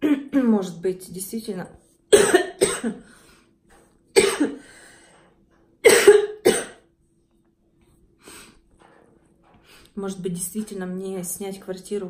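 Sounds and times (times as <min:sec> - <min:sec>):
woman coughing: 0:00.0 - 0:00.4, 0:02.1 - 0:03.1, 0:04.2 - 0:04.6, 0:05.8 - 0:06.9.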